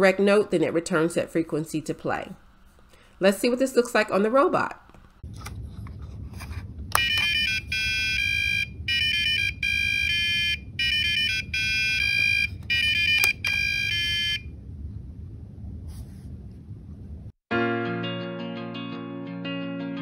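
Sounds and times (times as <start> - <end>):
buzzer playing beeping tune: 7.0 - 14.4.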